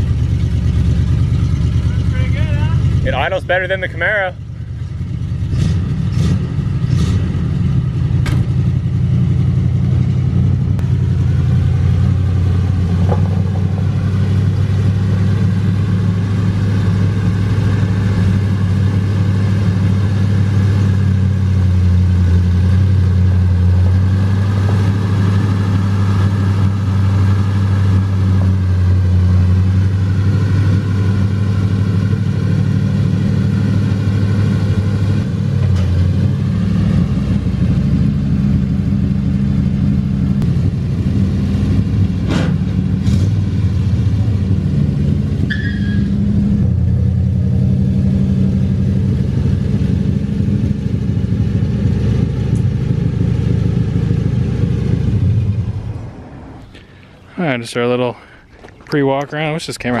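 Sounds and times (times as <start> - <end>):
pickup engine idling: 0.0 - 24.0, 48.5 - 60.0.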